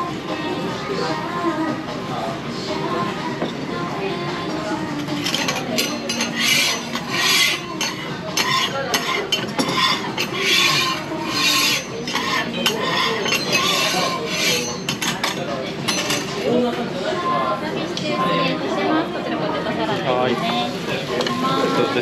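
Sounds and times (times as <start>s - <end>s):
metal spatula scraping griddle: 5.2s - 14.9s.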